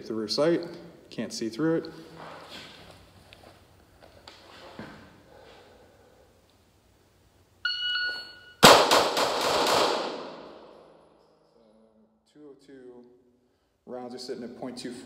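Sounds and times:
shot timer beeping: 7.6 - 8.6
pistol shots echoing: 8.6 - 10.7.

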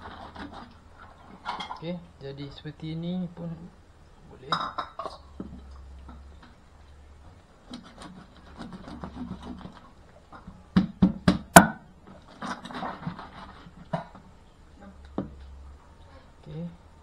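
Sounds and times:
cleaver scraping fish: 0.0 - 1.6, 7.6 - 10.3, 12.1 - 14.3
knock: 10.7 - 11.8.

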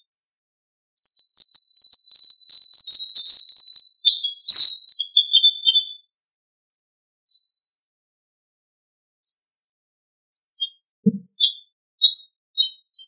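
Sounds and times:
songbird trilling: 4.3 - 5.9
sharp click: 4.5 - 4.8.

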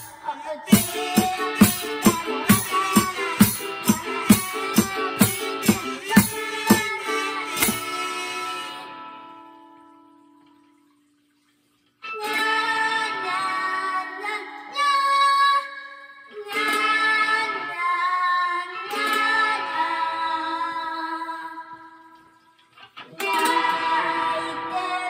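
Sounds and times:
children singing: 0.0 - 8.9, 23.1 - 25.0
ukulele: 0.0 - 9.9, 12.1 - 14.9, 16.3 - 21.3, 22.9 - 25.0
cajon drumming: 0.7 - 8.4.

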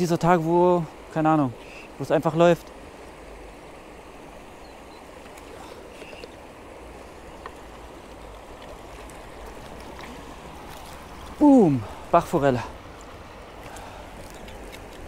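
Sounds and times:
stream water flowing: 0.0 - 15.0
faint ticks: 7.4 - 9.2.

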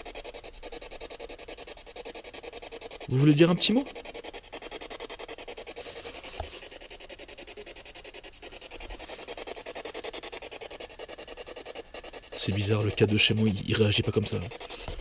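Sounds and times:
radio static pulsing rapidly: 8.5 - 15.0
faint steady high tone: 8.9 - 15.0.

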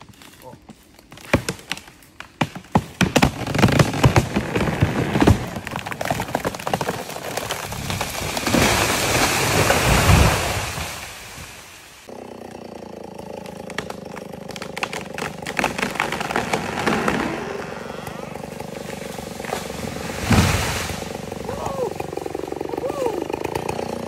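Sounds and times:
branches cracking and snapping: 0.0 - 11.5, 13.3 - 24.0
tree crashing down: 2.4 - 11.5, 13.4 - 24.0
engine running: 12.0 - 24.0.

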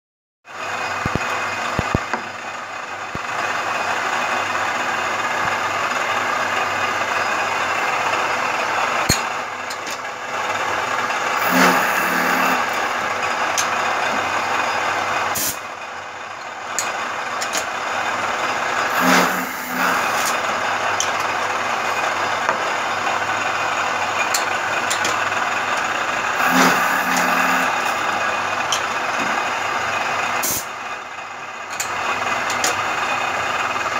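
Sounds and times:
milling machine cutting metal: 11.2 - 13.7, 18.8 - 20.4, 26.3 - 28.2
compressed air hiss: 15.4 - 15.6, 30.4 - 30.7.

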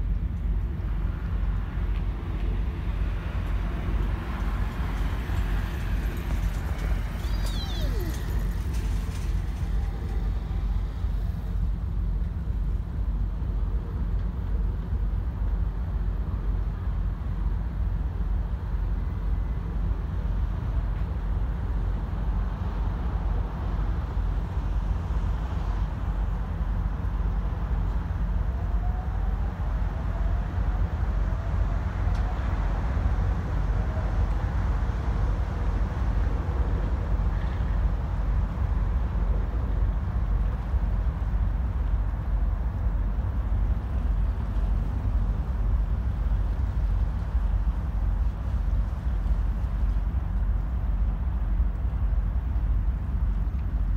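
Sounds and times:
road traffic rumble: 0.0 - 53.9
train whine: 2.8 - 14.0.

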